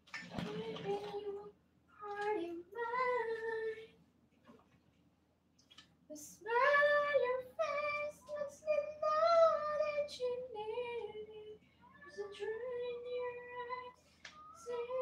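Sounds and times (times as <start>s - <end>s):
high voice singing unaccompanied: 0.4s - 3.9s, 6.1s - 15.0s.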